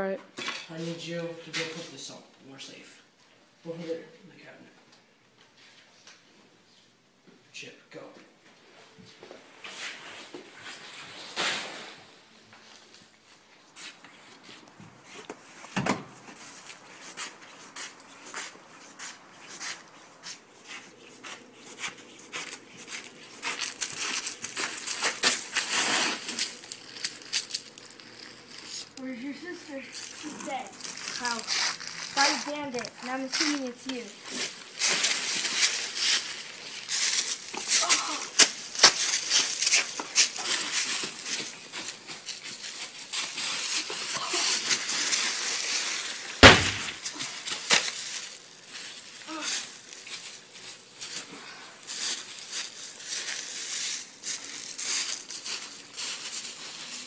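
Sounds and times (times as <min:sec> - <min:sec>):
footsteps in dry leaves: 0:16.3 - 0:57.0
loud thump: 0:46.4 - 0:47.0.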